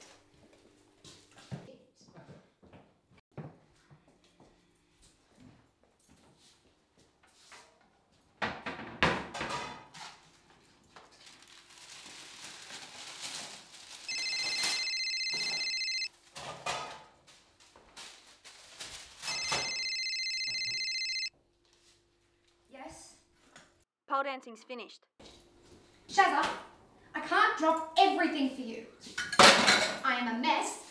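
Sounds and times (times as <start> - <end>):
phone ringing with electronic trill: 14.1 - 16.1, 19.3 - 21.3.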